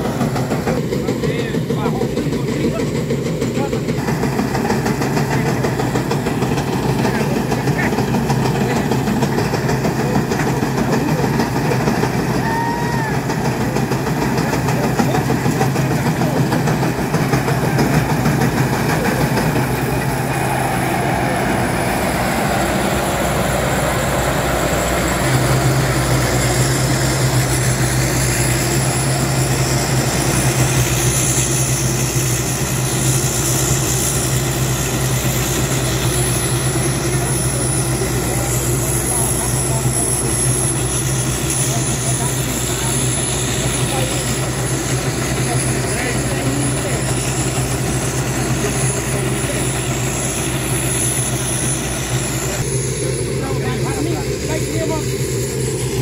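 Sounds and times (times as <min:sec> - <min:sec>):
combine harvester engine hum: 0:00.0 - 0:56.0.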